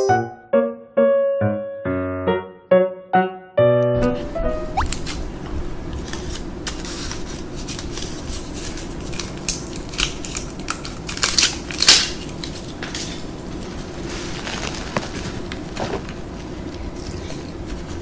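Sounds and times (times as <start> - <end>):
steady low hum: 4.0 - 14.4.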